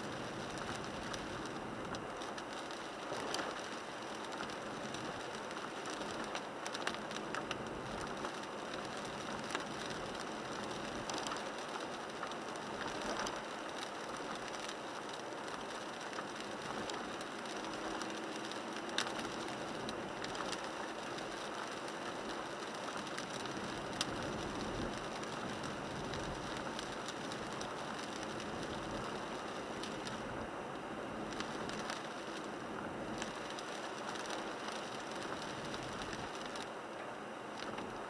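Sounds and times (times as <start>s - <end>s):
tyres hissing on wet road: 0.0s - 36.8s
rain on car roof: 0.0s - 38.0s
raindrops ticking: 0.1s - 30.4s, 31.2s - 36.8s.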